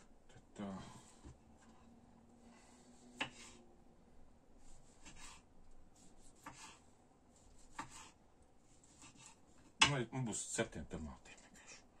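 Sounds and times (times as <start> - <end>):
knife slicing tomatoes: 3.1 - 3.6, 4.7 - 5.4, 6.0 - 6.8, 7.4 - 9.9.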